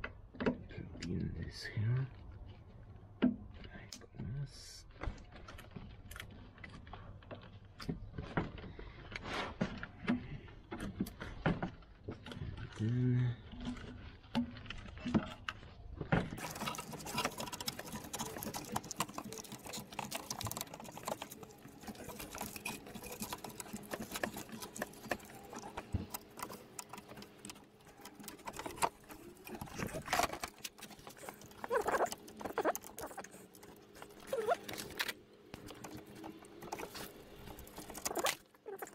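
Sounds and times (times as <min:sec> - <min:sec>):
gloved hands rustling and scratching: 0:16.4 - 0:38.9.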